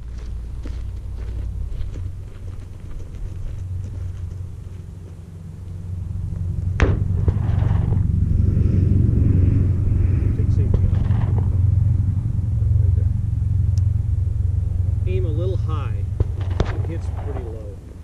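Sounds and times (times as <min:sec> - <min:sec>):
low rumble: 0:00.0 - 0:18.0
gunshot crack: 0:06.8 - 0:08.0, 0:16.2 - 0:17.6.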